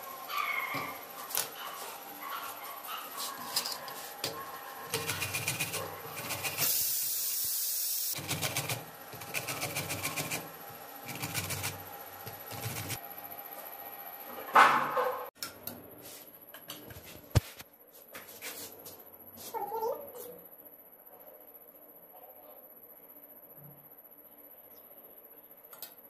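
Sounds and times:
mango rasping on a box grater: 12.4s - 13.0s.

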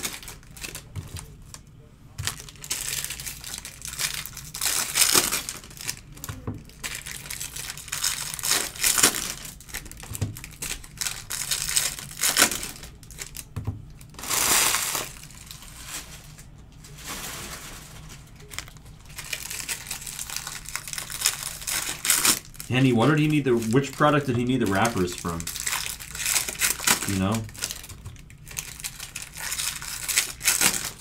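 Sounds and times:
foil wrappers crinkling: 0.0s - 31.0s.

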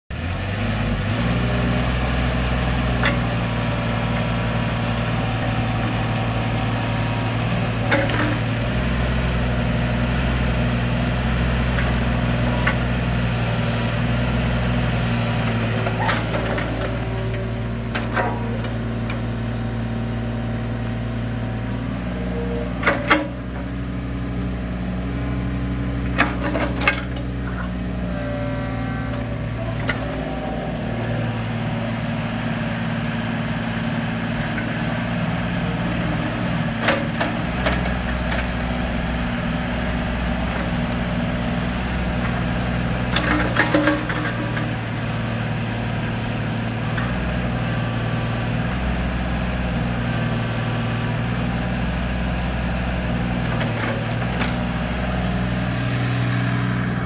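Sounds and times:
excavator diesel engine running: 0.1s - 57.0s.

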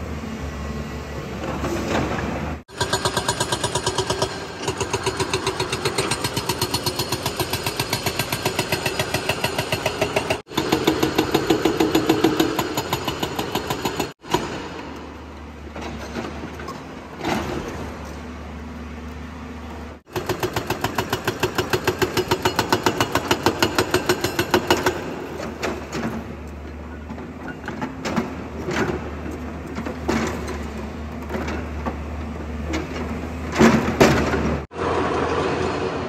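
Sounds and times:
hydraulic rock breaker hammering: 2.7s - 15.1s, 20.1s - 26.3s.

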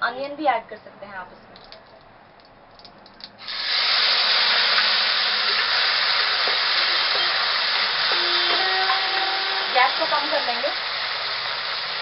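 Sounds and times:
tomatoes sizzling in hot oil: 3.4s - 12.0s.

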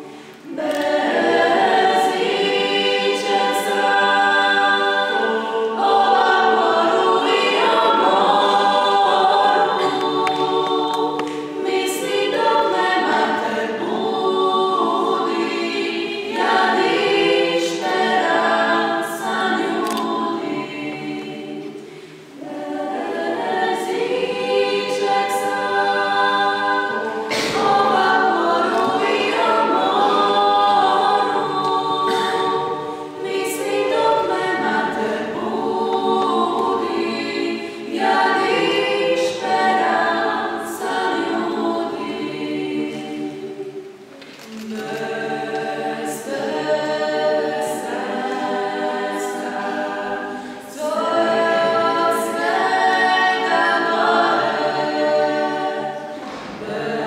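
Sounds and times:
choir singing a cappella: 0.0s - 57.0s.

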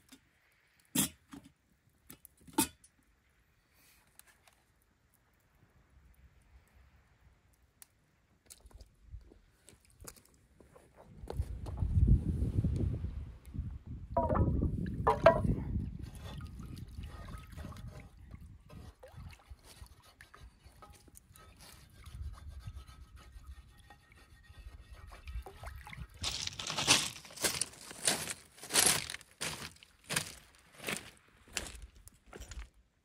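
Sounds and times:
water: 0.0s - 11.1s, 12.7s - 26.9s
footsteps crunching on pebbles: 26.2s - 32.8s.

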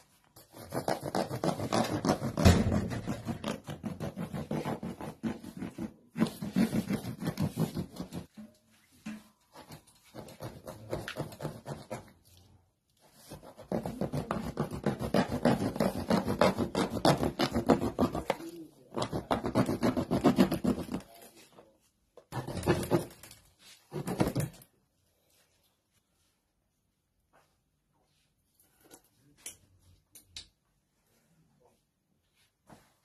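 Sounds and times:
knife sawing through plastic: 0.4s - 8.3s, 9.6s - 12.2s, 13.1s - 21.3s, 22.3s - 24.4s.

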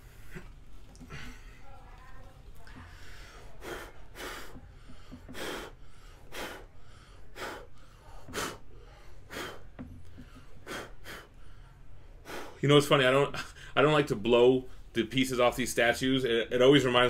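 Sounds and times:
man blowing puffs of breath: 3.4s - 9.7s.

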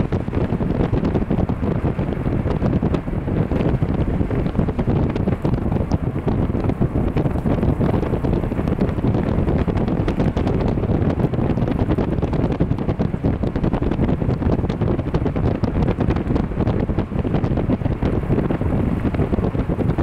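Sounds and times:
gusty wind on microphone: 0.0s - 20.0s.

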